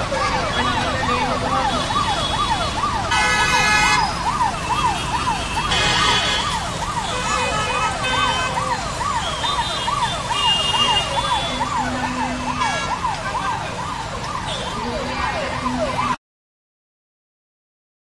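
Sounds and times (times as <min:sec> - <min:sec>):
siren wailing: 0:00.0 - 0:16.2
street traffic: 0:00.0 - 0:16.2.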